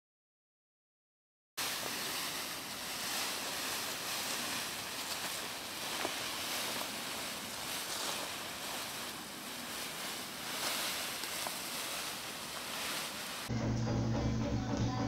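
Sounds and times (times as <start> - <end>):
steady rushing noise: 1.6 - 13.5
music with strong bass: 13.5 - 15.0.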